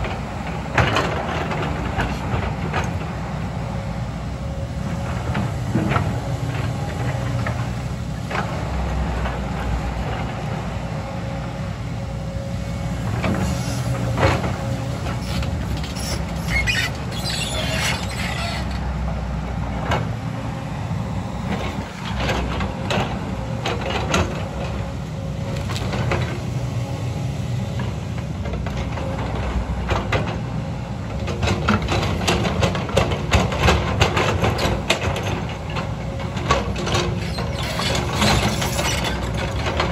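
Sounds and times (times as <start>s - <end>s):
excavator diesel engine rumbling: 0.0s - 39.9s
high metallic squeal: 15.2s - 18.8s.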